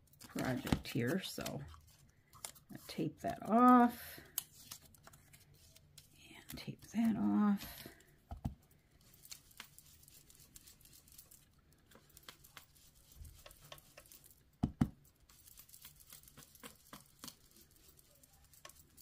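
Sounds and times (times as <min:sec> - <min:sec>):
brush tapping and brushing: 0:08.3 - 0:19.0.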